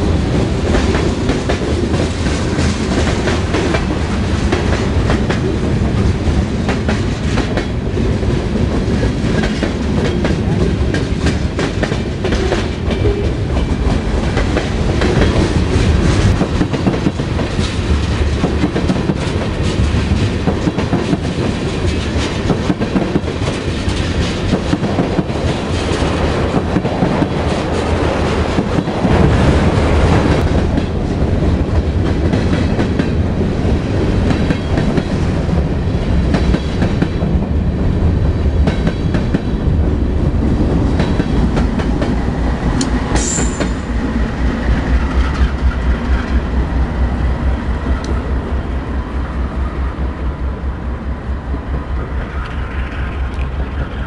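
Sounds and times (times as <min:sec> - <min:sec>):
freight train rumble: 0:00.0 - 0:54.0
high wheel squeal: 0:43.2 - 0:44.0.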